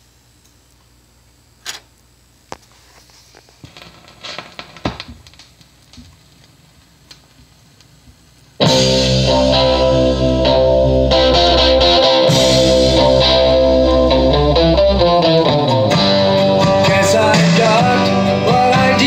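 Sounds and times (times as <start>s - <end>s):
stylus clicks and crackles: 4.2s - 8.6s
electric guitar music: 8.6s - 19.0s.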